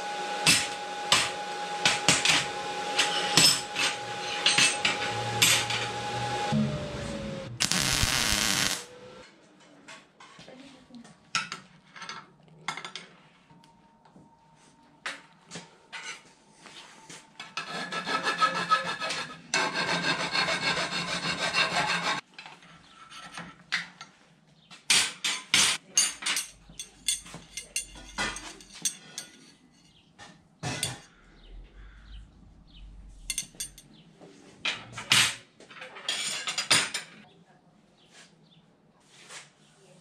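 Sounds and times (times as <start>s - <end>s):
metal scraping and rubbing: 3.0s - 9.2s, 17.4s - 22.2s, 26.4s - 30.0s, 32.7s - 33.9s
steel rods clinking on table: 26.0s - 29.9s, 33.3s - 33.9s.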